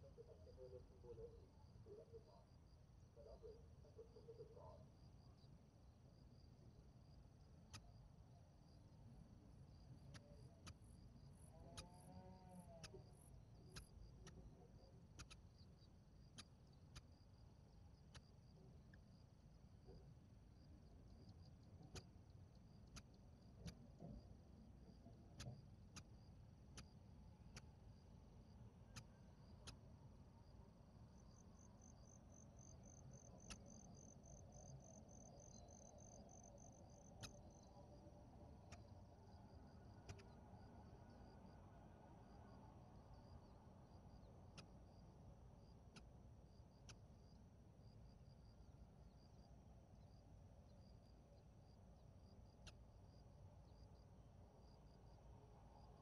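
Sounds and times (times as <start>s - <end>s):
fainter insect chirping: 0.0s - 56.0s
insect chirping: 0.0s - 56.0s
faint ticks: 7.4s - 8.4s, 9.8s - 41.5s, 42.6s - 51.5s, 52.2s - 54.1s.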